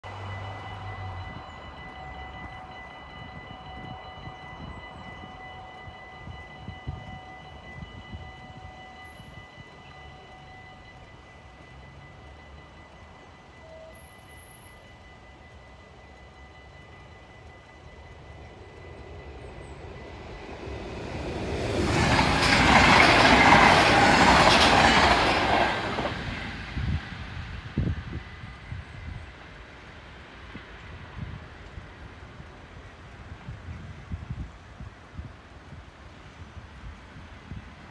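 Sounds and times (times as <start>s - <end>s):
level crossing bells ringing: 0.0s - 21.9s
train rumble and wheel noise: 0.0s - 37.9s.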